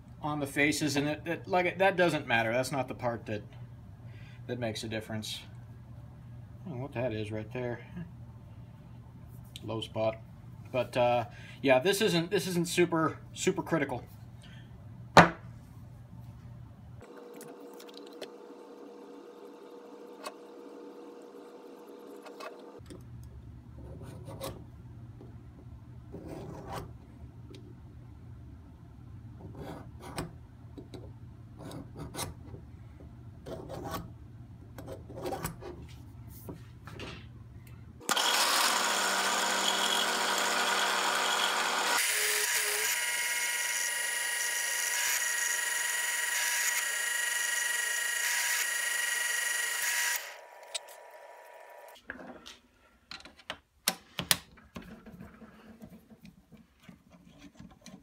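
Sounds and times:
drill press drilling metal: 0:38.0 - 0:51.9.

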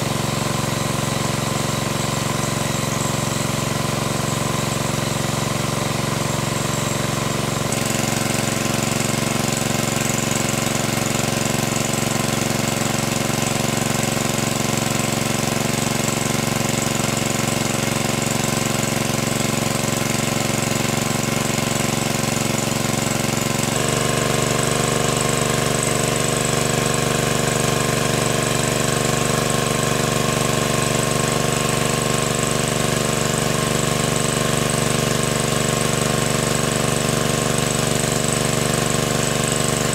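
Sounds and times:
water pump engine running: 0:00.0 - 0:39.9
water rushing from hose: 0:00.0 - 0:39.9.

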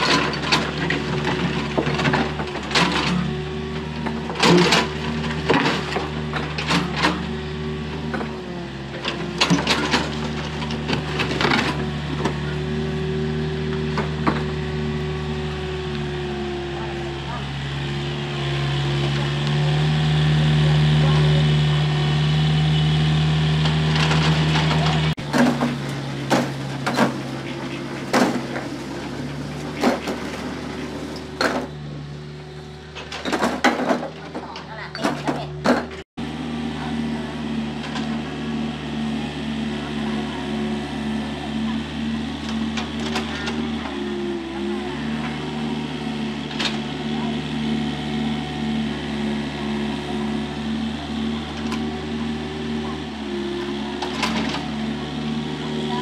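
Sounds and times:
diesel engine running: 0:00.0 - 0:56.0
bucket scraping soil and stones: 0:23.7 - 0:31.4.

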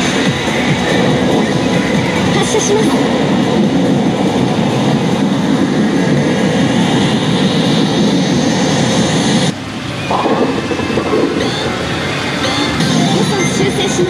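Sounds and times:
faint rising whine: 0:03.0 - 0:13.7
rumbling bowling ball roll effect: 0:10.1 - 0:12.0.

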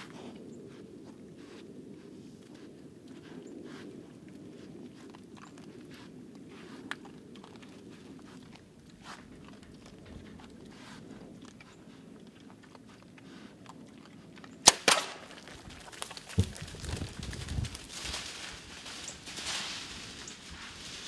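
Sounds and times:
hogs crunching corn: 0:00.0 - 0:21.0
bow shot cracks: 0:14.6 - 0:15.4.

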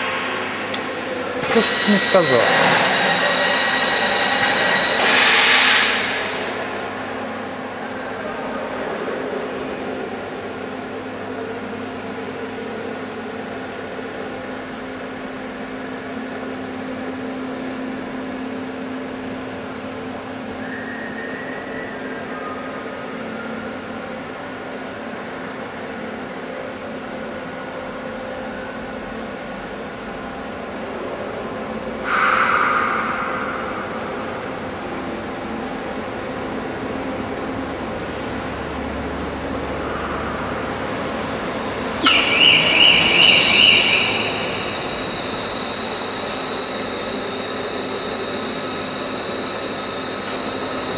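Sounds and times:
machinery and ventilation hum: 0:00.0 - 0:50.9
robot arm whine: 0:01.4 - 0:05.1, 0:42.0 - 0:50.9
loud burst of hiss: 0:01.4 - 0:06.0.

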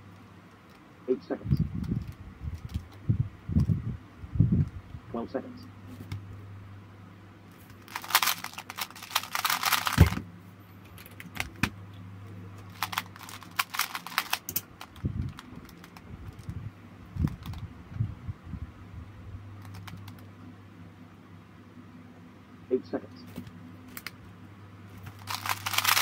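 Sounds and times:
puzzle cube turning clicks: 0:07.7 - 0:10.2, 0:12.6 - 0:16.5, 0:17.2 - 0:17.6, 0:19.6 - 0:20.3, 0:23.9 - 0:24.2, 0:25.1 - 0:26.0.

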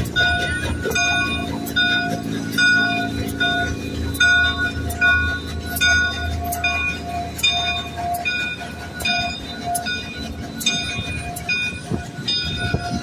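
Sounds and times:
locomotive bell ringing: 0:00.0 - 0:13.0
passing train rumble: 0:00.0 - 0:13.0.

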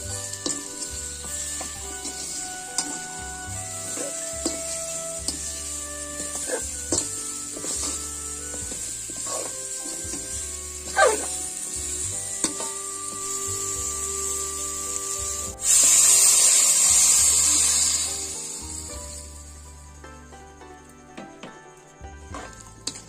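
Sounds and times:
wooden spatula scraping: 0:00.0 - 0:13.3, 0:22.3 - 0:23.0
fruit sizzling in hot oil: 0:00.0 - 0:20.2
water hissing in hot pan: 0:00.0 - 0:20.2.

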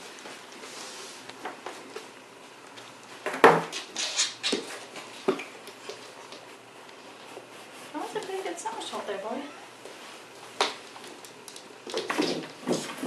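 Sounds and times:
knocks and clatters on hard floor: 0:03.2 - 0:03.9, 0:11.5 - 0:13.0.

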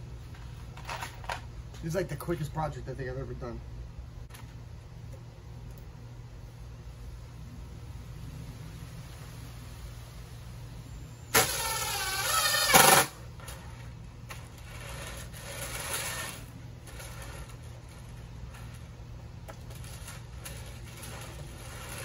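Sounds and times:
cordless drill driving a screw: 0:11.4 - 0:13.2.

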